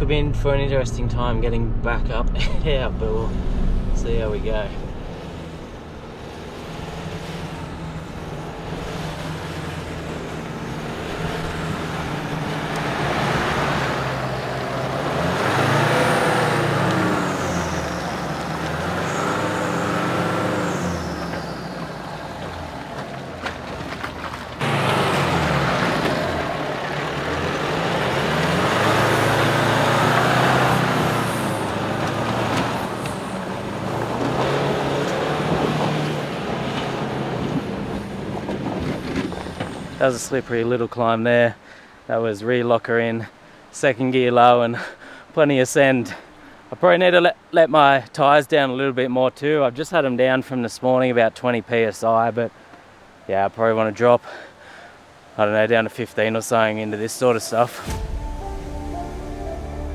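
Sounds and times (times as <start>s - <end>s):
truck engine revving hard: 1.6s - 40.4s.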